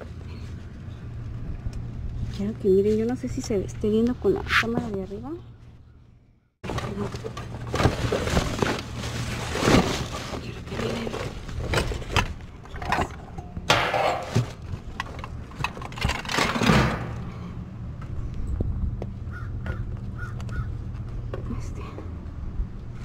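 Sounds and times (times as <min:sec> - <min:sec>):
plastic bags and cardboard rustling: 0:06.6 - 0:13.2
bumps and scrapes: 0:06.6 - 0:21.7.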